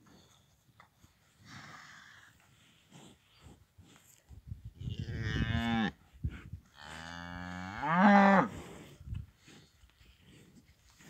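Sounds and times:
cattle mooing: 6.8s - 8.5s.

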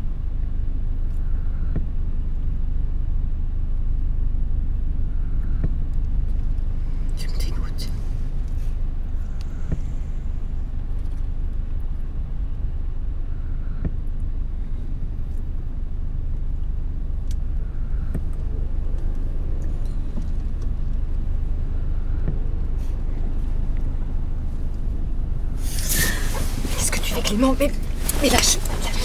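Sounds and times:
car road rumble from inside: 0.0s - 29.0s.

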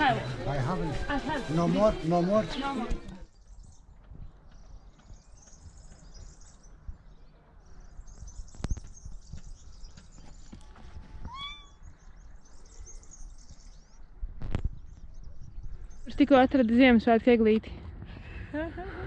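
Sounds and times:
faint high chirping: 5.0s - 14.1s.

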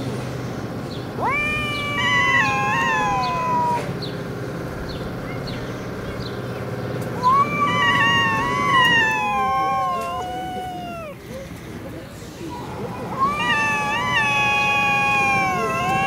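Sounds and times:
cats yowling: 1.2s - 4.1s, 7.2s - 11.4s, 12.9s - 16.0s.

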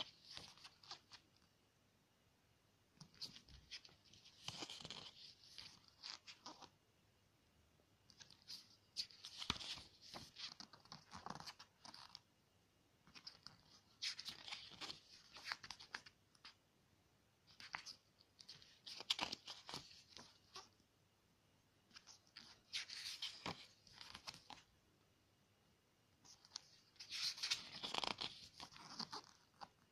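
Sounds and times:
book pages rustling: 0.0s - 1.5s, 3.0s - 6.7s, 8.1s - 12.2s, 13.1s - 16.6s, 17.5s - 20.7s, 21.9s - 24.7s, 26.3s - 29.9s.

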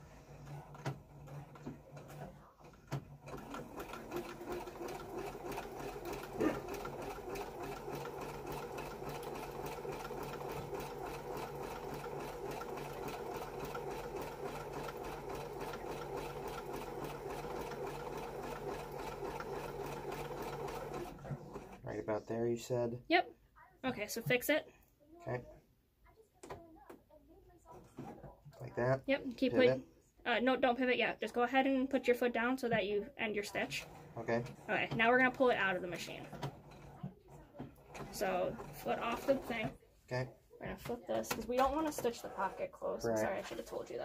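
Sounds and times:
sewing machine running: 0.0s - 22.0s, 33.6s - 39.7s.

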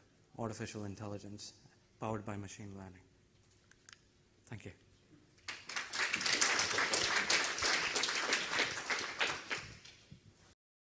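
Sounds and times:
audience applauding: 5.4s - 10.0s.

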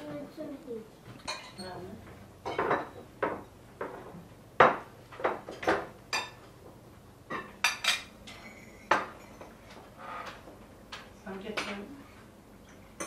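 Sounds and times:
cutlery clinking on plates: 1.2s - 1.7s, 2.4s - 6.5s, 7.3s - 10.4s.

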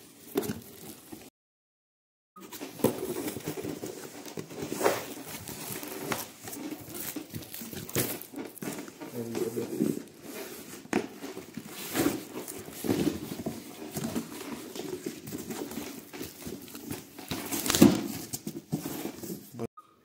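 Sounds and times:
books knocking and scraping: 2.4s - 19.6s
plastic wrap crinkling: 2.6s - 18.5s.

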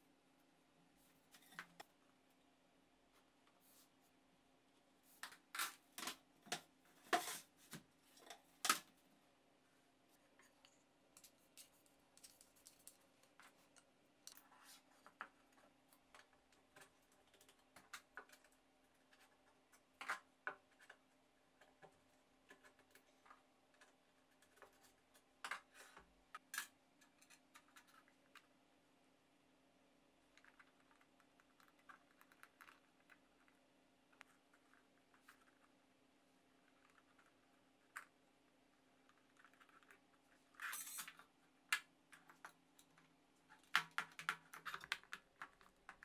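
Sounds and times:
faint steady hum: 0.0s - 46.0s
plastic connectors clicking and knocking: 40.8s - 46.0s.

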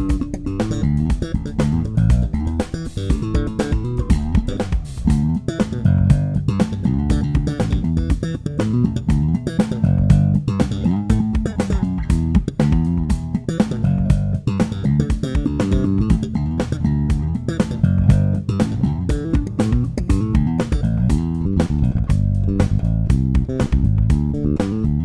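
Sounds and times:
electric bass fingerstyle run: 0.0s - 25.0s.

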